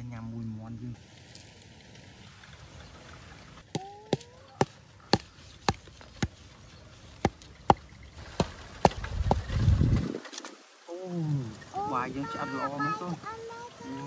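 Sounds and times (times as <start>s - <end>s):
knife chopping into bamboo: 3.7s - 6.4s.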